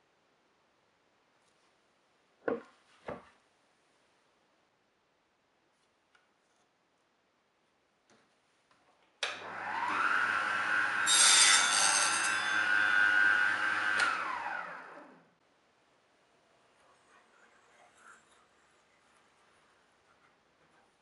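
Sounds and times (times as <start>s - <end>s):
table saw motor whining: 9.3s - 15.3s
saw blade ripping wood: 11.0s - 12.9s.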